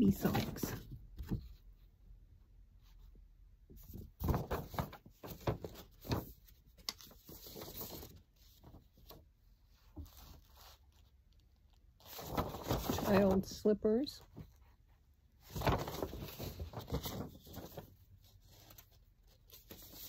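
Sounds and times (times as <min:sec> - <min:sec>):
paper rustling: 0:03.8 - 0:13.6, 0:15.4 - 0:20.0.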